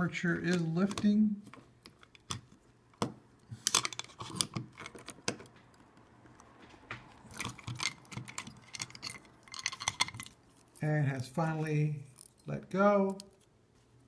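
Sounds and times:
screwdriver metallic clicks and scrapes: 0:03.4 - 0:06.5, 0:07.1 - 0:11.4.

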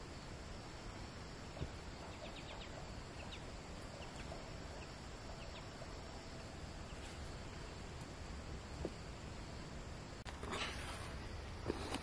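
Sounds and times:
steady outdoor hiss: 0:00.0 - 0:12.0
high bird chirps: 0:02.0 - 0:05.9.

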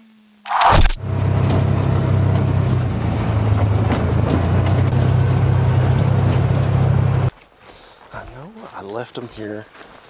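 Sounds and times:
utility vehicle engine hum: 0:00.9 - 0:07.3
vehicle ride rumble and rattle: 0:00.9 - 0:07.3.

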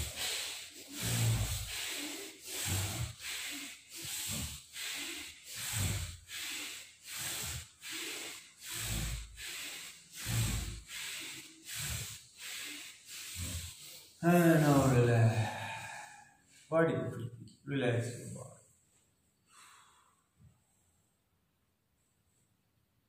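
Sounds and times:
man breathing hard through nose: 0:00.0 - 0:16.7, 0:19.4 - 0:20.4.

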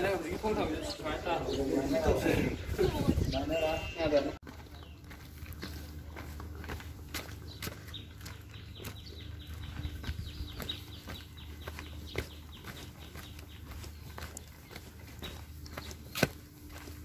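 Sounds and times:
footsteps on brick path: 0:00.0 - 0:17.0.

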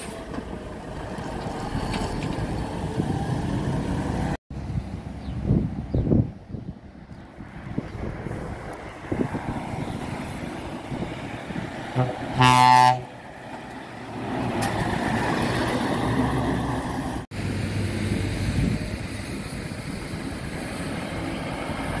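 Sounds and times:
diesel truck engine passing: 0:00.0 - 0:22.0
truck air horn: 0:11.9 - 0:13.2.

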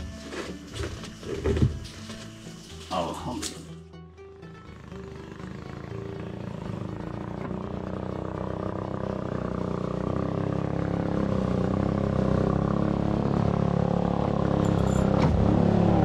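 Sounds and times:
small engine running: 0:04.2 - 0:16.0.

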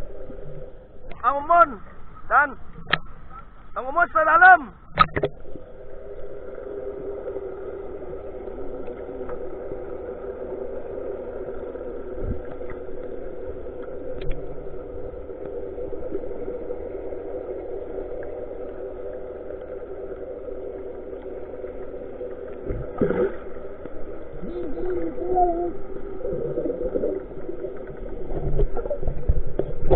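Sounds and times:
boat engine hum underwater: 0:00.0 - 0:03.8, 0:04.7 - 0:29.9.

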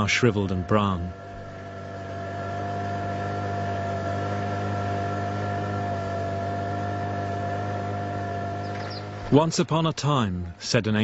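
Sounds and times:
motor humming with whine: 0:00.0 - 0:11.0.

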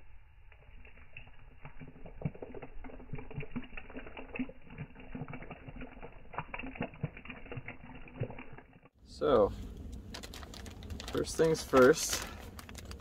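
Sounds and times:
hot drink pouring into mug: 0:00.5 - 0:08.9.

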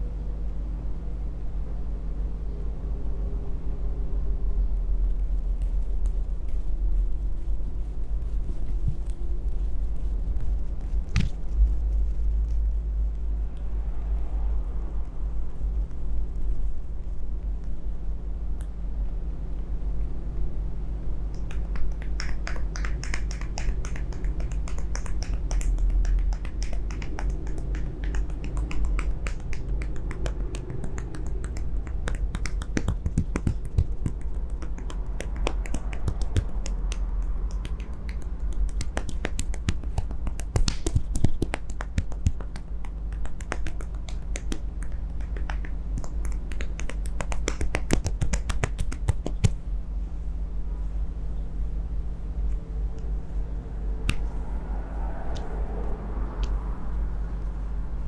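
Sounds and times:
steady low hum: 0:00.0 - 0:58.0
hands tapping skin: 0:05.5 - 0:12.8, 0:21.3 - 0:49.6.

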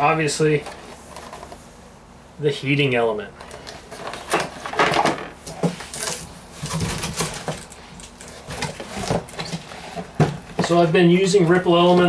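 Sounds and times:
cardboard rustling and scraping: 0:03.5 - 0:12.0.

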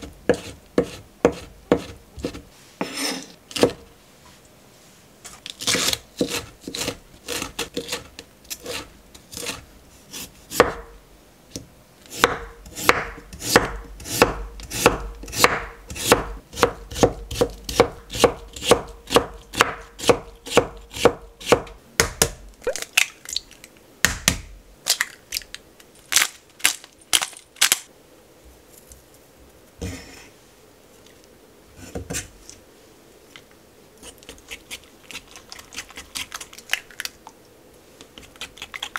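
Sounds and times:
knife chopping on wooden board: 0:00.3 - 0:03.8, 0:10.5 - 0:10.9, 0:12.1 - 0:22.4.

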